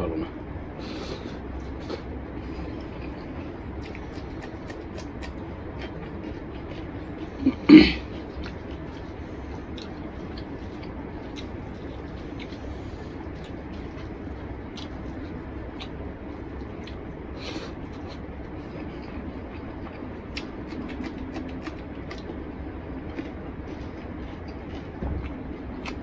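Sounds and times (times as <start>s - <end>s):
person chewing: 1.0s - 26.0s
wet squishes of hand mixing food: 8.0s - 26.0s.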